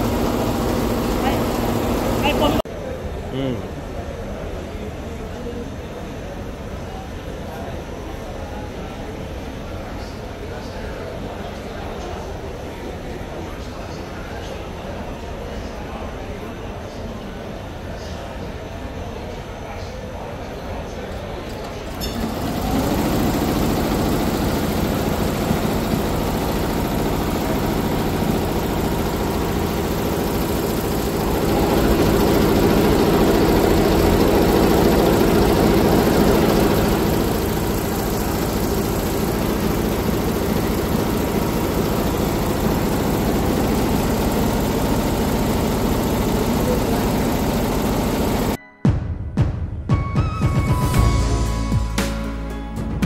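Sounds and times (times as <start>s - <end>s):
embroidery machine humming: 0.0s - 2.6s, 21.5s - 48.6s.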